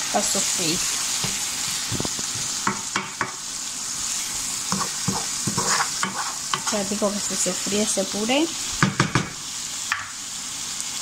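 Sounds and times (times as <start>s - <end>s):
food sizzling in a frying pan: 0.0s - 11.0s
wooden spoon scraping a pan: 4.0s - 8.0s.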